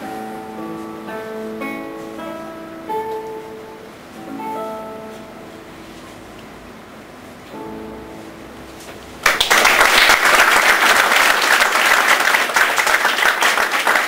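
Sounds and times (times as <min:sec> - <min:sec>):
classical guitar chord ringing: 0:00.0 - 0:06.3, 0:07.5 - 0:09.3
audience applauding: 0:09.2 - 0:14.0.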